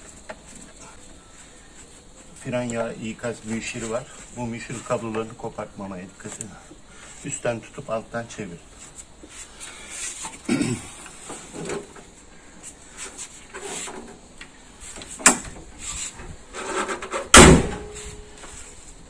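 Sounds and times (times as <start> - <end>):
car bonnet slamming: 17.3 - 18.0.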